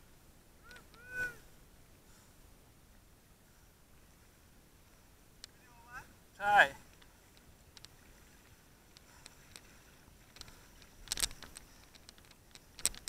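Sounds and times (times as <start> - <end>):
paddle splashing in water: 4.0 - 13.0
water dripping: 6.8 - 13.0.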